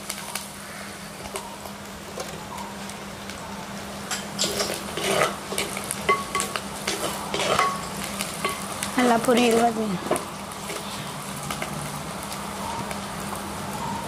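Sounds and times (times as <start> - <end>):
frying sizzle: 0.0 - 14.0
wooden spoon scraping pot: 4.4 - 5.8, 6.9 - 7.8.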